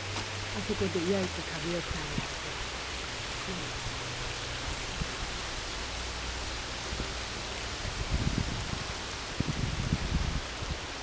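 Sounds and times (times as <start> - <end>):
flowing water rushing: 0.0 - 11.0
wind or handling thumps on microphone: 7.8 - 11.0.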